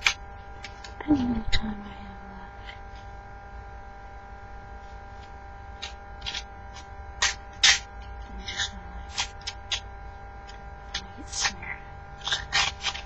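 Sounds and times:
steady electrical hum: 0.0 - 13.0
hands rustling and scraping materials: 10.5 - 13.0.

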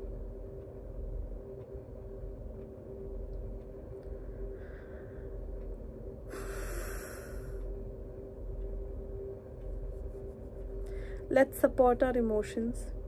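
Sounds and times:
low hum: 0.0 - 13.0
woman breathing: 4.2 - 8.0, 10.8 - 11.3.

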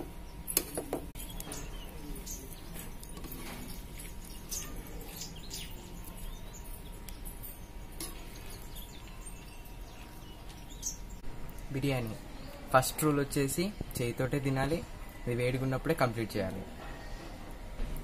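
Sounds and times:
small birds chirping: 0.0 - 15.2.

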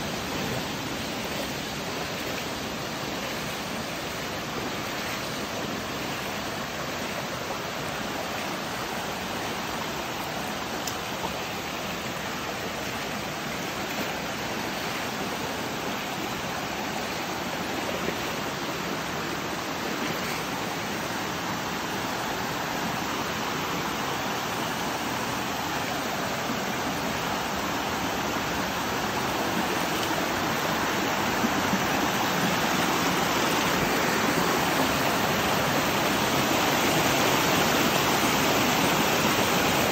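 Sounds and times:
stream water rushing over stones: 0.0 - 39.9.

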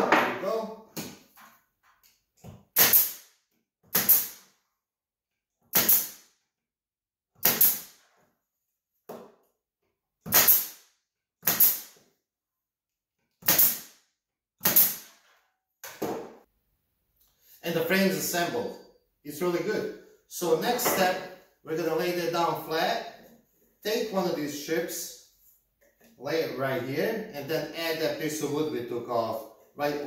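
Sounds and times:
nail gun firing into wood: 2.8 - 3.3, 3.9 - 4.5, 5.7 - 6.3, 7.4 - 8.0, 10.3 - 10.8, 11.4 - 12.0, 13.4 - 14.0, 14.6 - 15.2.

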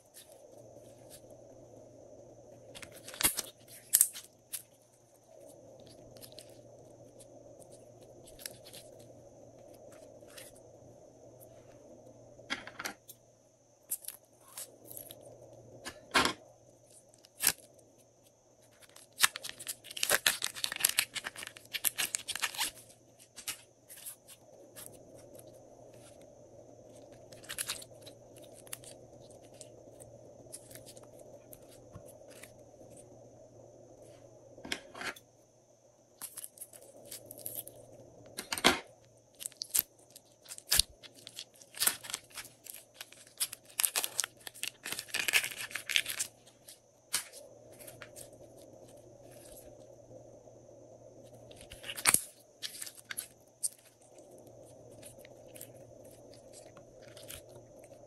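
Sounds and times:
plastic bags crinkling and tearing: 18.7 - 24.1, 39.4 - 46.4.

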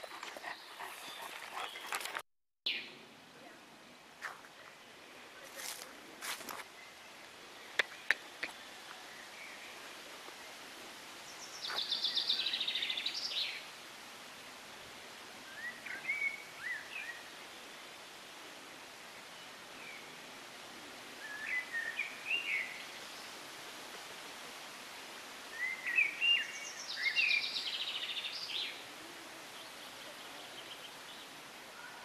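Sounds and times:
songbirds singing: 0.0 - 3.0, 11.2 - 13.7, 15.5 - 17.4, 21.2 - 23.4, 25.4 - 32.0
steady outdoor hiss: 0.0 - 32.0.

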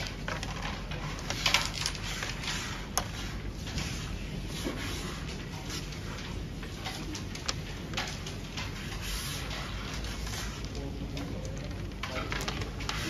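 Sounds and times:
wooden game pieces clacking: 0.0 - 2.4.

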